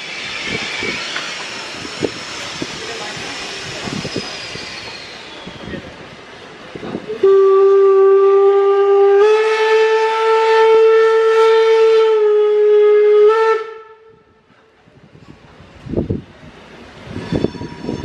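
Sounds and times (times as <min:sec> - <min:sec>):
steam locomotive whistle: 0:07.1 - 0:14.4.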